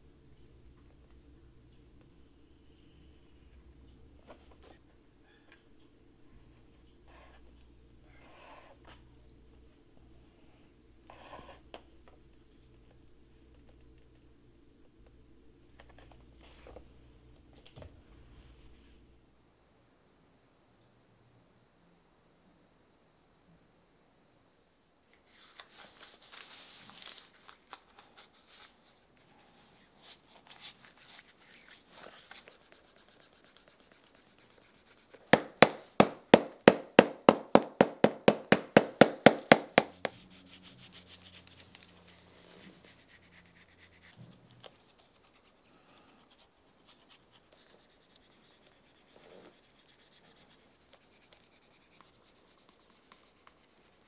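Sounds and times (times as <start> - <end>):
brush stroking leather: 30.1 - 35.8, 39.0 - 45.6
hammer tapping on leather: 35.4 - 40.1.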